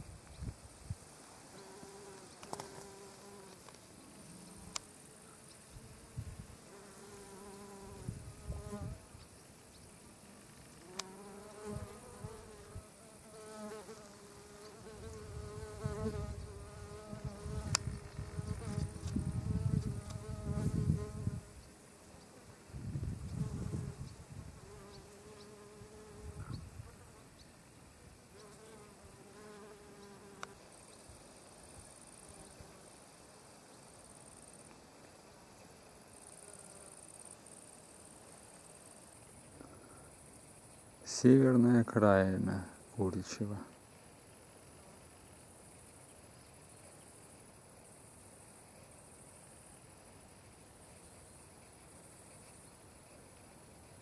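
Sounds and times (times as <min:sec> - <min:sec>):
flying insects buzzing: 0:00.0 - 0:54.0.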